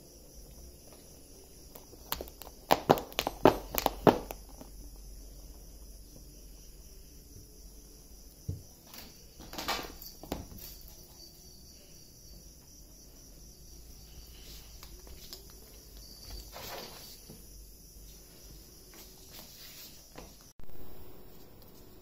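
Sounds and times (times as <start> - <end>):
shuffling footsteps: 12.5 - 20.5
rustling: 13.9 - 20.5.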